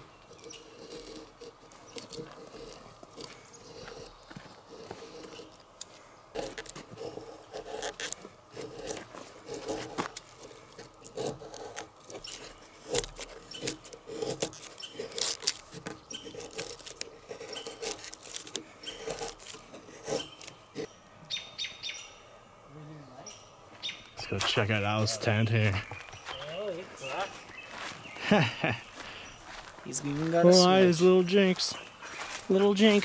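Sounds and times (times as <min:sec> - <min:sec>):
bird chirping: 0:00.0 - 0:01.1, 0:12.1 - 0:12.8, 0:13.4 - 0:14.0, 0:14.6 - 0:19.4, 0:20.0 - 0:33.0
knife scraping wooden stick: 0:00.0 - 0:20.9.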